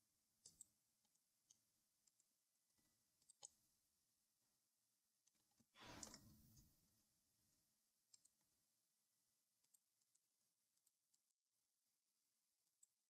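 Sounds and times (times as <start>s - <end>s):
computer mouse clicks: 0.4s - 2.3s, 3.2s - 3.6s, 5.2s - 6.7s, 8.1s - 8.4s, 9.6s - 11.4s.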